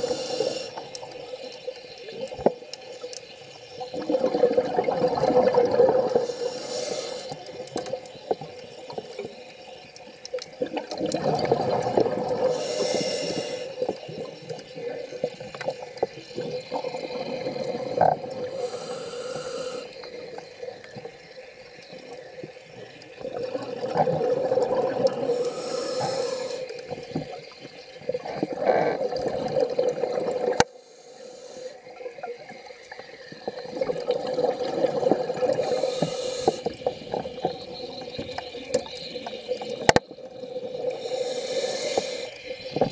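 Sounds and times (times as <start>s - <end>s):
hissing regulator inhalation: 0.0s - 1.1s, 5.4s - 8.0s, 11.1s - 14.3s, 16.5s - 20.5s, 23.9s - 27.0s, 30.3s - 32.0s, 33.5s - 37.5s, 40.6s - 42.7s
bubbling underwater exhalation: 4.0s - 6.3s, 10.6s - 13.0s, 23.2s - 25.4s, 28.1s - 30.6s, 33.5s - 36.0s.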